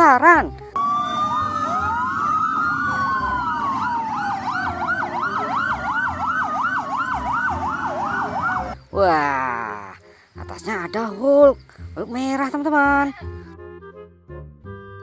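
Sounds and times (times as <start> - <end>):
fast siren yelp: 0.8 - 8.8
siren wail falling in pitch: 0.8 - 8.8.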